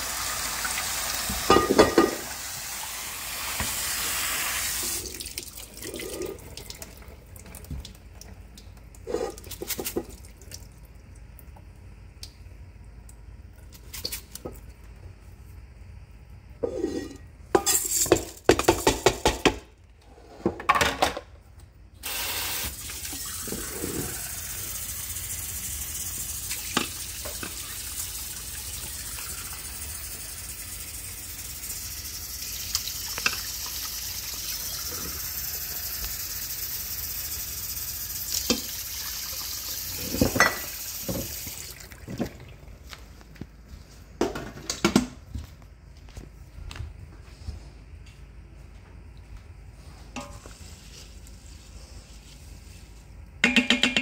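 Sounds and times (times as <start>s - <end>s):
faucet running into cup: 22.0s - 24.9s, 32.4s - 36.7s, 38.3s - 42.0s.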